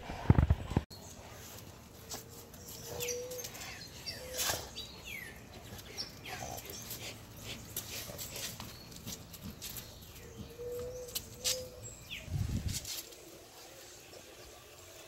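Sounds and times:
dogs scuffling at play: 5.5s - 11.8s.

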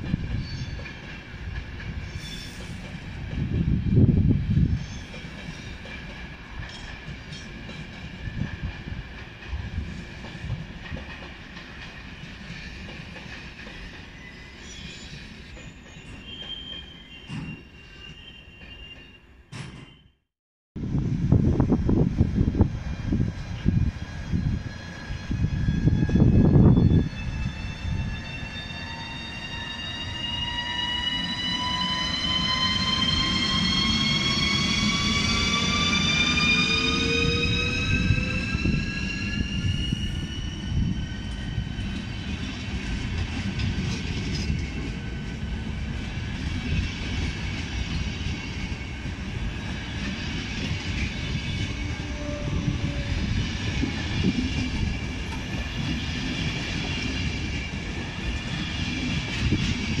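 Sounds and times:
train rumble and wheel clatter: 0.0s - 17.7s, 20.8s - 60.0s
electric locomotive whining: 20.9s - 60.0s.

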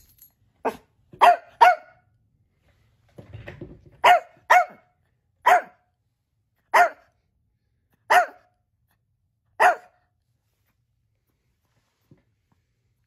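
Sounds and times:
small dog barking: 0.6s - 2.0s, 4.0s - 5.9s, 6.7s - 7.1s, 8.0s - 8.5s, 9.6s - 10.0s.

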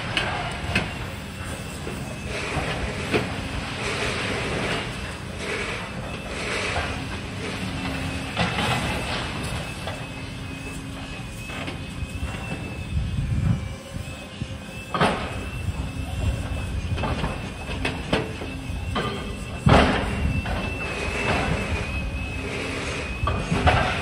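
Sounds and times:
diesel engines rumbling: 0.0s - 24.0s
thin high engine whine: 0.0s - 24.0s
demolition bangs and clanks: 16.5s - 21.8s, 23.2s - 24.0s.

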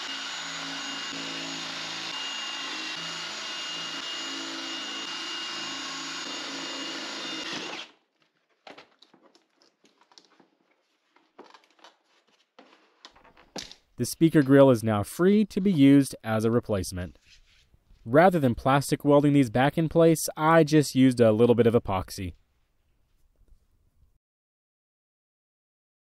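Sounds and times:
cordless drill drilling plastic: 0.0s - 8.0s.

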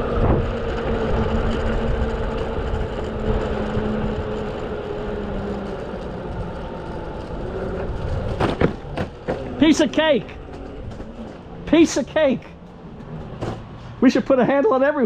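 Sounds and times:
electric skateboard motor whine: 0.0s - 14.0s
rubber tyres rumbling on asphalt: 0.0s - 15.0s.

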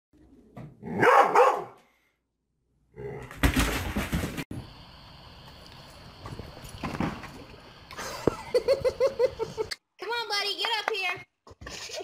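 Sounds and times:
dog barking loudly: 0.9s - 1.8s.

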